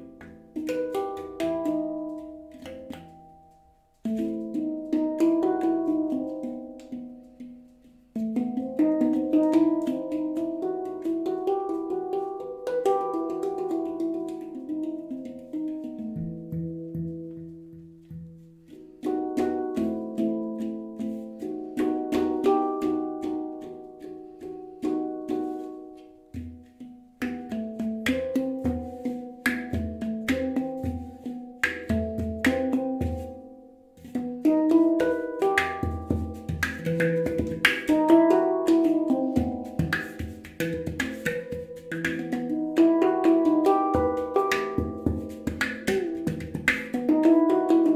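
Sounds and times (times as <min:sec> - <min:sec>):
handpan melody: 0:00.0 - 0:47.9.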